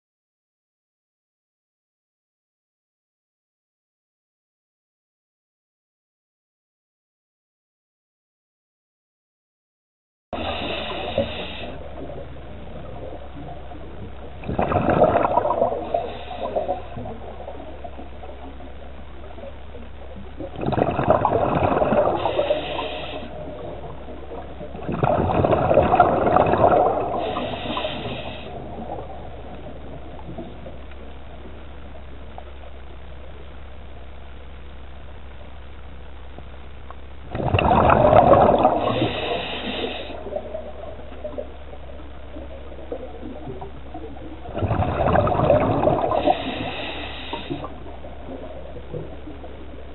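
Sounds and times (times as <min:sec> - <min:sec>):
exhaled bubbles underwater: 0:10.4 - 0:34.1, 0:37.2 - 0:49.9
steady low hum: 0:10.4 - 0:49.9.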